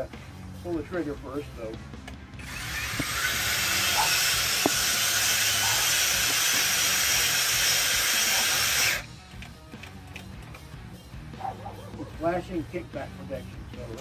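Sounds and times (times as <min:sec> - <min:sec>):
earth auger grinding into ground: 0:02.4 - 0:09.1.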